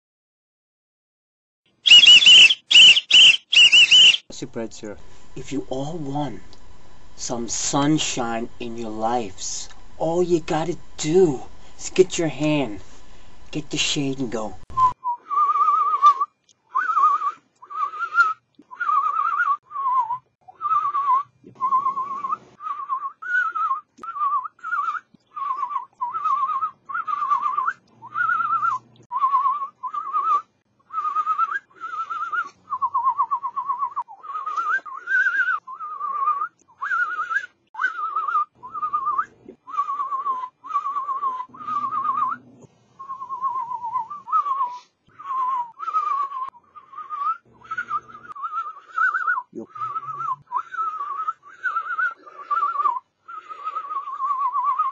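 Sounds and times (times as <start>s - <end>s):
man whistling warbling phrases: 1.8s - 4.3s, 31.3s - 54.9s.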